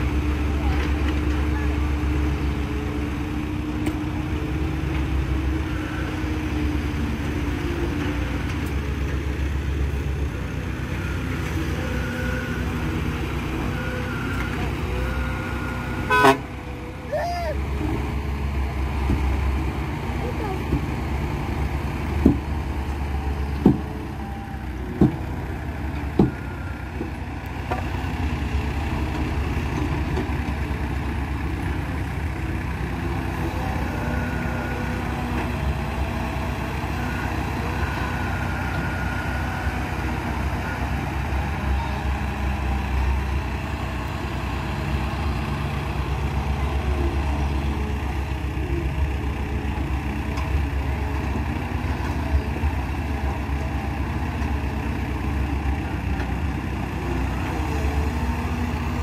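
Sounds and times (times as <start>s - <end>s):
diesel engines running: 0.0s - 59.0s
excavator loading dirt into truck: 17.8s - 43.4s.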